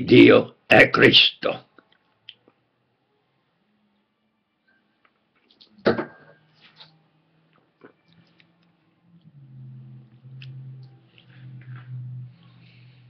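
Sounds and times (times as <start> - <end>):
low steady hum: 2.2 - 13.0
wine glass set down: 5.8 - 6.5.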